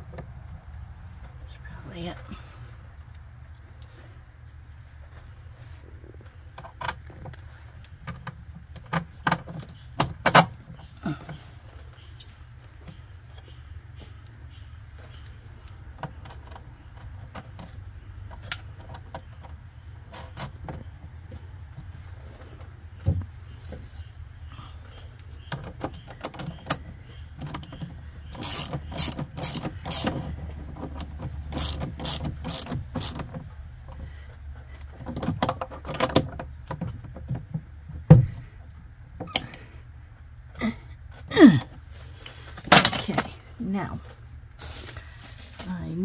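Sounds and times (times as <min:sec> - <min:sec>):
small nut clicking on metal: 0:28.4 - 0:30.2, 0:31.5 - 0:33.2.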